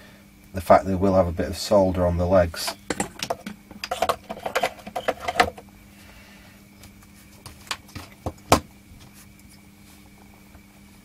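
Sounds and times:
faint steady hum: 0.0s - 11.0s
clicks and knocks of handled parts: 2.6s - 5.6s.

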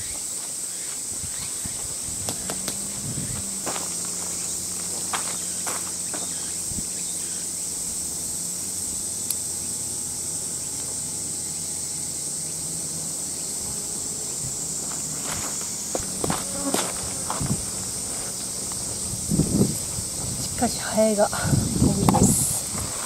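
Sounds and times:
insect chorus drone: 0.0s - 23.0s
footsteps on gravel: 0.1s - 6.6s, 14.5s - 20.6s.

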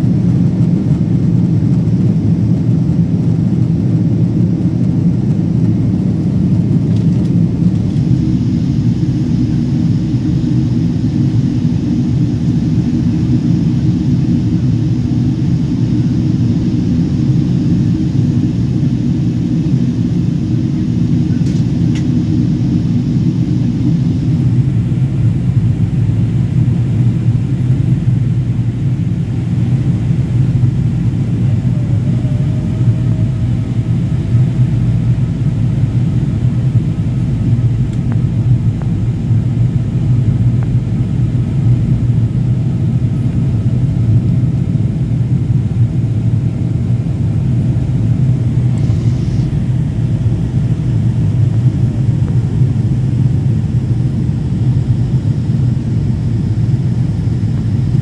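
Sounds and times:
airplane cabin rumble: 0.0s - 58.0s
faint thin whine: 48.3s - 58.0s.

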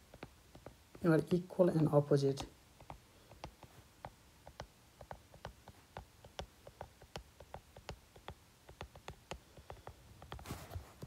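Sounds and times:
low steady hiss: 0.0s - 11.0s
stylus tapping on tablet screen: 0.0s - 11.0s.

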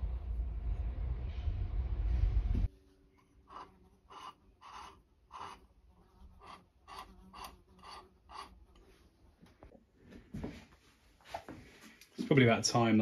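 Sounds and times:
faint dry rubbing scrape: 2.9s - 9.4s.

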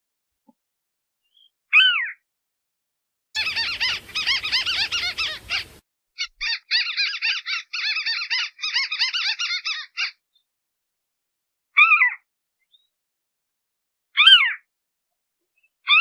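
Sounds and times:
bird chattering call: 3.4s - 10.2s.

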